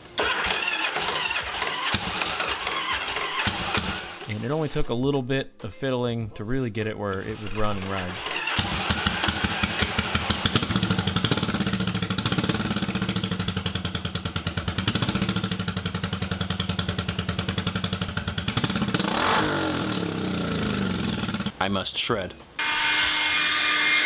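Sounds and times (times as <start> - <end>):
motorcycle engine idling: 8.4 - 19.3, 19.9 - 21.5.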